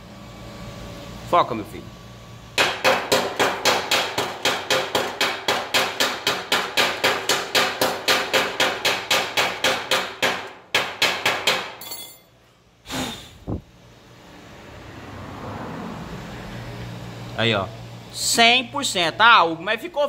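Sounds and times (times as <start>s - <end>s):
chipping hammer knocking on steel: 2.6s - 11.8s.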